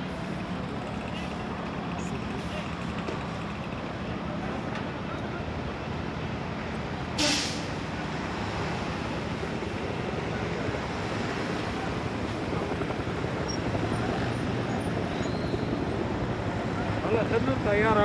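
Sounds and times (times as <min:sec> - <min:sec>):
fire engines idling: 0:00.0 - 0:18.0
large fire burning: 0:00.0 - 0:18.0
short sharp hiss: 0:07.2 - 0:07.8.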